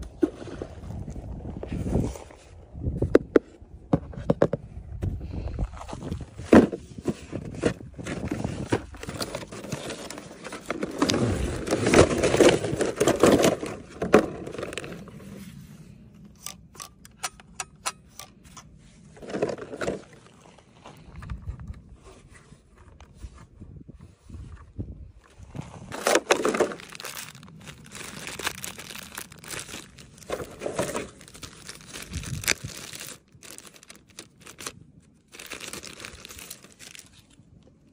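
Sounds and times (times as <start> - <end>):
cardboard box scraping: 5.9 - 15.7, 25.6 - 34.7
packaging rustling: 25.9 - 37.4
plastic packaging crackling: 25.9 - 37.4.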